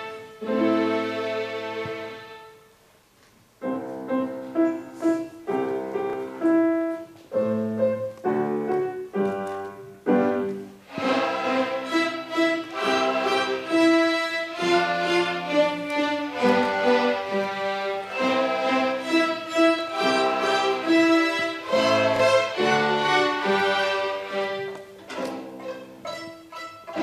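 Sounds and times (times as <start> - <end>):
violins playing: 0.0 - 2.7, 10.2 - 27.0
piano accompaniment: 0.0 - 2.8, 3.5 - 27.0.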